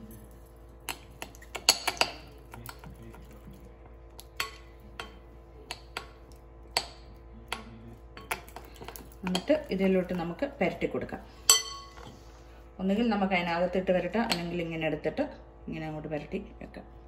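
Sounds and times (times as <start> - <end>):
metal spoon clinking on glass bowl: 11.5 - 12.0.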